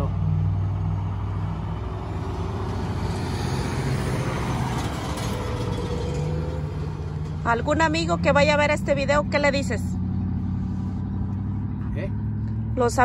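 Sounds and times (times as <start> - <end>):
traffic engine hum: 0.0 - 13.0
vehicle passing: 0.0 - 13.0.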